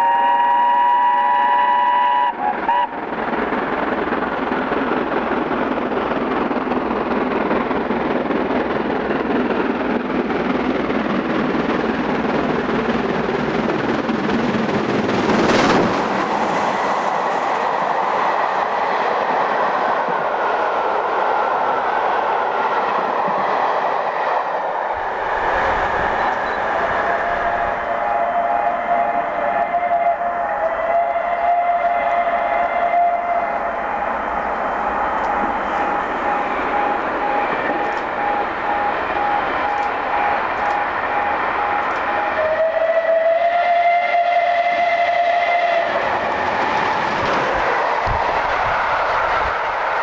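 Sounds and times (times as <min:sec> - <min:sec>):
steam locomotive whistle: 0:00.0 - 0:03.0, 0:25.9 - 0:46.8
steam locomotive exhaust and wheels: 0:00.0 - 0:50.0
train coaches rolling by: 0:00.0 - 0:50.0.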